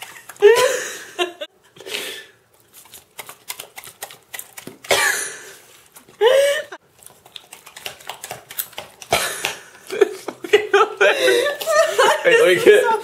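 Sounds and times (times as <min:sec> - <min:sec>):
dog chomping noodles: 0:02.7 - 0:05.0, 0:06.9 - 0:09.6.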